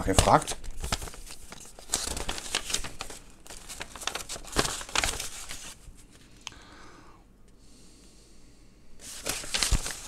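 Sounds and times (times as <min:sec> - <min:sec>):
paper rustling and crinkling: 0:00.0 - 0:06.4, 0:09.0 - 0:10.0.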